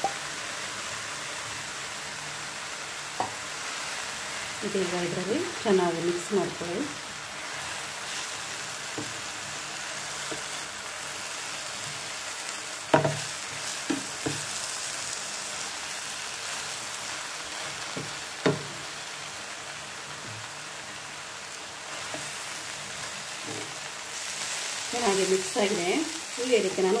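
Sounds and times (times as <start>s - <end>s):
food sizzling in a frying pan: 0.0s - 27.0s
spoon knocking against pan: 3.2s - 3.4s, 12.9s - 13.2s.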